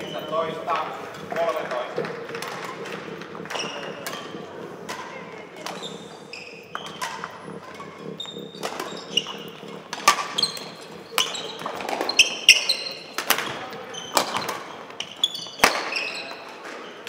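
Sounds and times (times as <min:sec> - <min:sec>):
shoes squeaking on floor: 0:00.0 - 0:17.0
racket hitting shuttlecock: 0:02.0 - 0:07.9.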